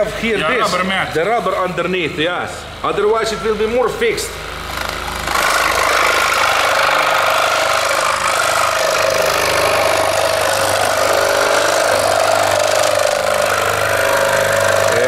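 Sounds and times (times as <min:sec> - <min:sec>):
scroll saw cutting wood: 0:04.6 - 0:15.0.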